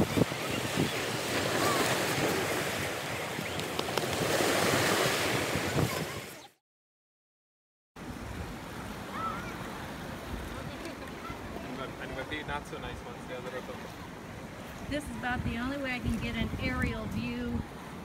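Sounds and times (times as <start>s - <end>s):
waves on a seashore: 0.0s - 6.5s, 8.0s - 18.0s
wind buffeting microphone: 0.0s - 6.5s, 14.5s - 18.0s.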